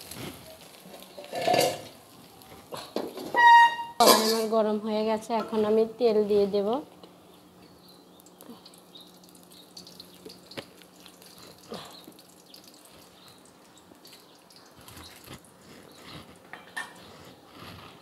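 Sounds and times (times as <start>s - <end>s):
oil trickling and sizzling: 0.0s - 18.0s
bottle and dishes clinking: 3.7s - 4.5s.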